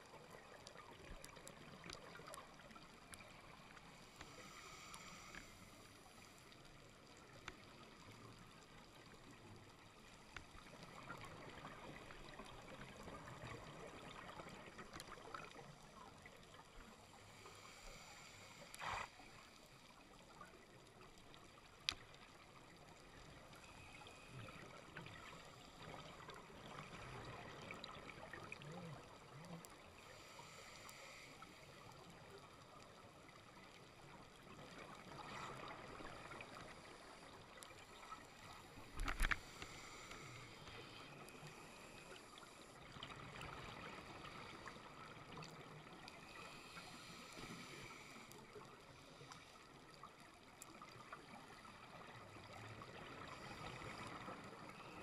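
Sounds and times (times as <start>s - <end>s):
underwater hiss: 1.6s - 20.5s, 22.7s - 50.0s, 50.7s - 55.0s
small sharp clicks: 38.9s - 40.8s.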